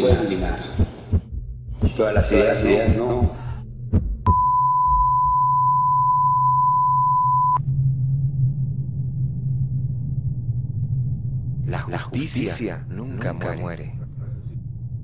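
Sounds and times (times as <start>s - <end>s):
heart monitor beat: 0.0s - 5.9s
low steady hum: 0.0s - 15.0s
heart monitor flatline tone: 0.1s - 7.6s.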